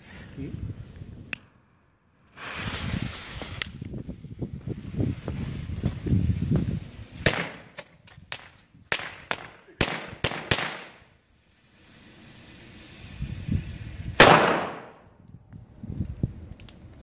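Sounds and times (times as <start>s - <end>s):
firecracker bangs: 7.2s - 11.0s, 14.1s - 15.0s.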